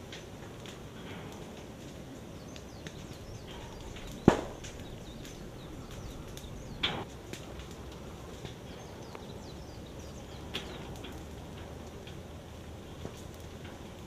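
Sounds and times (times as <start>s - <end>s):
lava flow crackling: 0.0s - 14.0s
low steady rush: 0.0s - 14.0s
loud sharp pop: 4.2s - 4.7s.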